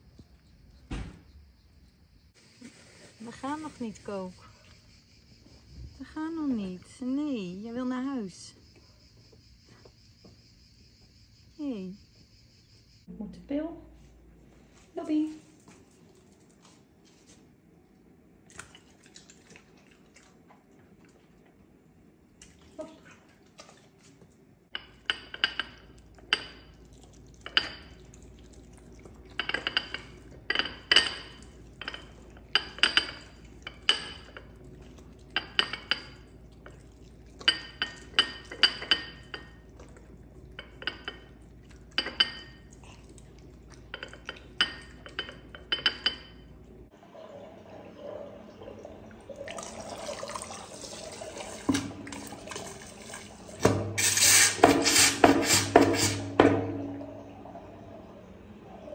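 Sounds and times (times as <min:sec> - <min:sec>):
crockery and cutlery clattering: 0:29.3 - 0:34.6, 0:43.8 - 0:46.5
steady low hum: 0:55.3 - 0:58.9.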